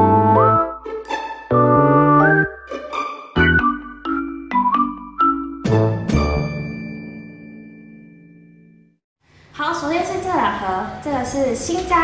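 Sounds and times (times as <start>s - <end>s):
light instrumental music: 0.0s - 8.8s.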